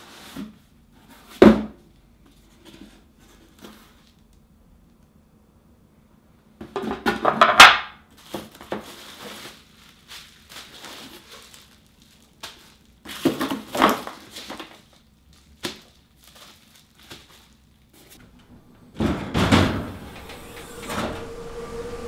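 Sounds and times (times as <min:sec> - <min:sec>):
bubble wrap and cardboard crinkling: 0:08.1 - 0:18.2.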